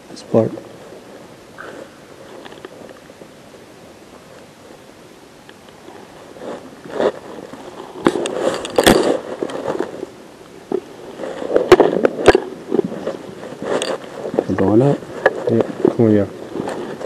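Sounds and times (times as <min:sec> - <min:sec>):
clothing rustle: 0:05.6 - 0:17.0
footsteps crunching over debris: 0:05.6 - 0:17.0.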